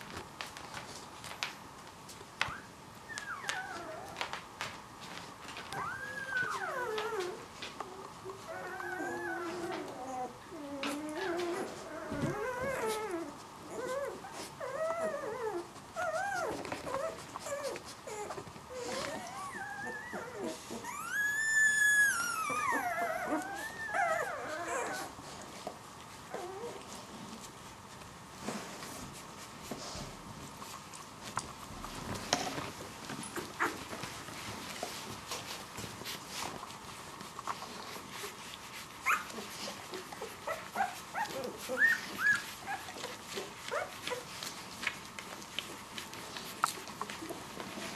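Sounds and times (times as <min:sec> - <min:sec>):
puppies whimpering and squealing: 0:02.4 - 0:04.4, 0:05.6 - 0:25.4, 0:26.2 - 0:26.9, 0:37.5 - 0:47.9.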